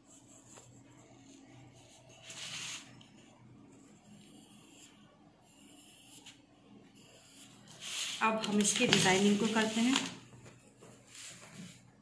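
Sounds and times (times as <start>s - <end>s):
pencil scratching on paper: 0.0s - 10.1s
hand rustling paper: 7.8s - 10.2s.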